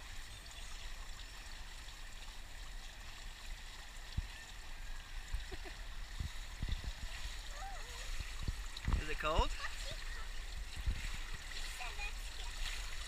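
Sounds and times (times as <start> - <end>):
water hissing and trickling: 0.0 - 13.0
soft low thumps: 9.8 - 11.8.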